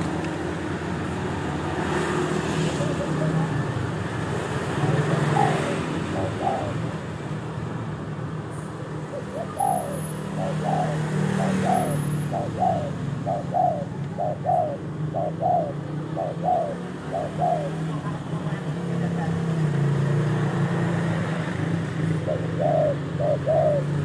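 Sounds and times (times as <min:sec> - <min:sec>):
dove cooing: 0:00.0 - 0:07.4, 0:08.8 - 0:18.6, 0:22.1 - 0:24.0.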